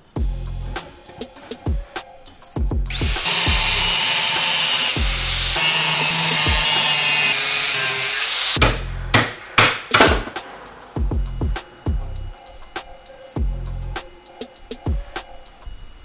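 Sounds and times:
background music with a beat: 0.0 - 5.6, 6.4 - 6.9, 8.6 - 15.6
angle grinder cutting steel: 2.9 - 11.0.

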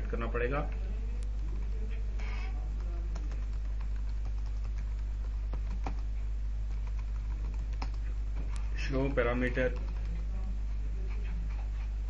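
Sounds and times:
low electrical hum: 0.0 - 12.0
keyboard typing clicks: 2.8 - 6.0, 6.7 - 10.2.

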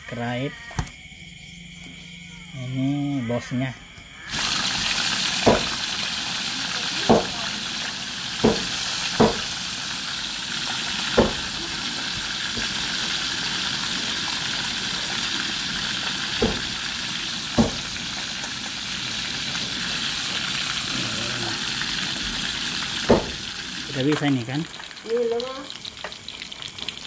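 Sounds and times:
fish sizzling in hot oil: 4.2 - 27.0
sharp knocks: 5.4 - 5.8, 7.1 - 7.3, 8.4 - 9.5, 11.2 - 11.5, 16.4 - 16.8, 17.6 - 17.9, 23.1 - 23.4.

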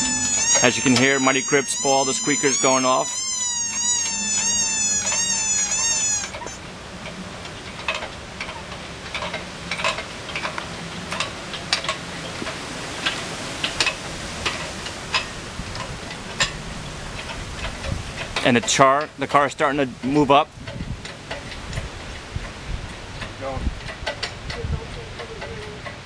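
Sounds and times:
rubber toy squeaker squealing: 0.0 - 6.6
chain and jack clicking: 23.2 - 26.0.

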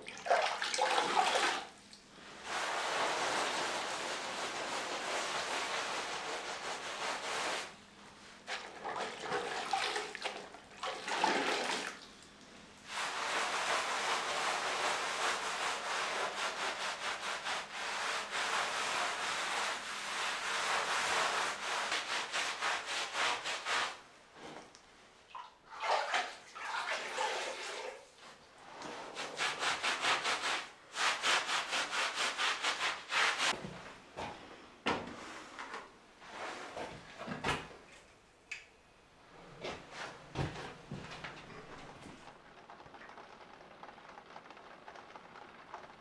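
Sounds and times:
wet sponge scrubbing stone floor: 2.3 - 7.8, 12.8 - 24.0, 29.0 - 33.6.

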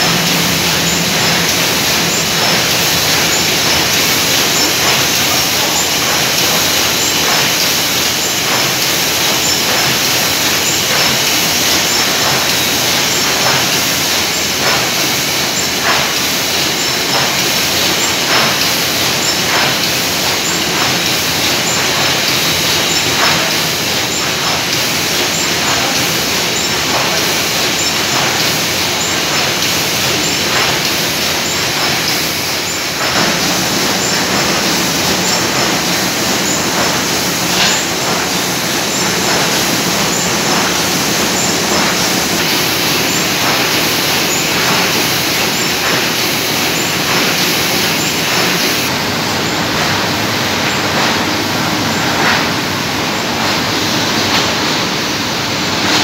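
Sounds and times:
sharp machine clicks: 0.0 - 49.0
printing press mechanical din: 0.0 - 56.0.

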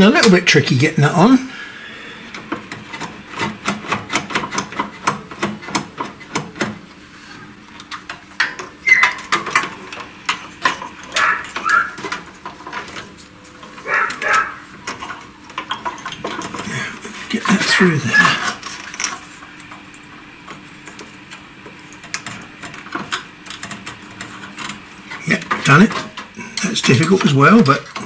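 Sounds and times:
metal parts clicking and rattling: 7.8 - 16.7, 17.4 - 28.0.

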